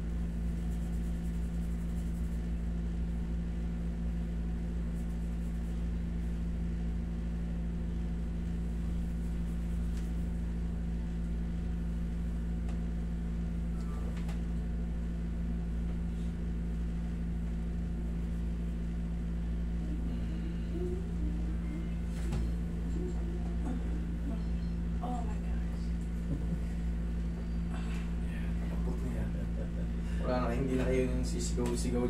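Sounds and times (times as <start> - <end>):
air conditioner hum: 0.0 - 32.0.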